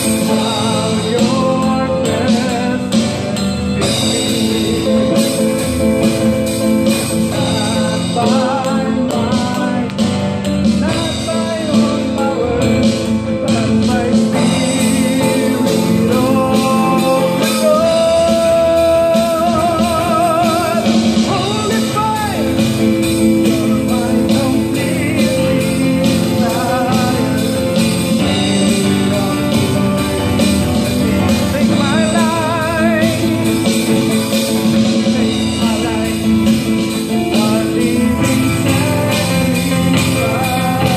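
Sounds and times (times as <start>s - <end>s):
keyboard: 0.0s - 40.9s
man singing with vibrato: 0.0s - 40.9s
strummed acoustic guitar: 0.0s - 40.9s.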